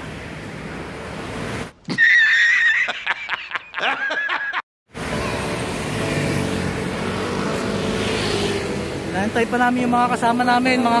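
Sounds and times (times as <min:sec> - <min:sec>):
road traffic: 0:00.0 - 0:03.9, 0:04.9 - 0:11.0
wind: 0:00.0 - 0:11.0
man laughing loudly: 0:01.9 - 0:04.6.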